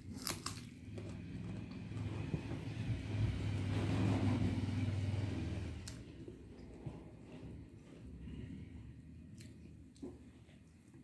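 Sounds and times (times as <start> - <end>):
passing motor vehicle rumble: 0.8 - 9.2.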